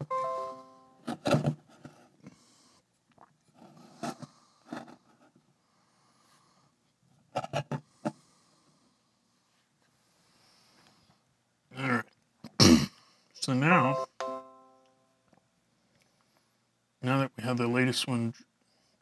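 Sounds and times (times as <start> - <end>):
device connected chime: 0.0 - 1.0, 13.8 - 14.9.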